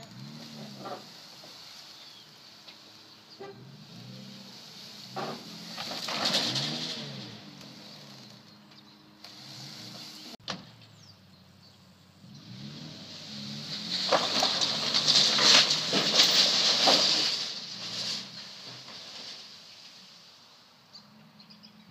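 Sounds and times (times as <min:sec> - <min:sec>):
pickup engine revving: 0:00.0 - 0:08.5, 0:09.2 - 0:10.4, 0:12.2 - 0:19.0.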